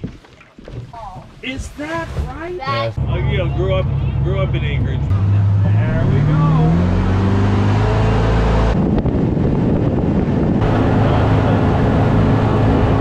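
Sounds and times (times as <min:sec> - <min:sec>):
rushing water: 0:00.0 - 0:08.7
motorboat engine running: 0:02.8 - 0:07.0, 0:07.9 - 0:13.0
wind noise: 0:07.7 - 0:13.0.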